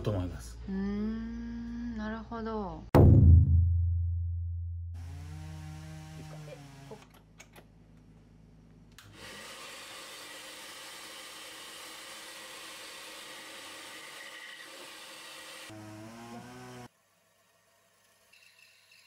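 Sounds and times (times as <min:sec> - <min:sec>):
workshop machine whirring: 0:09.0 - 0:19.0.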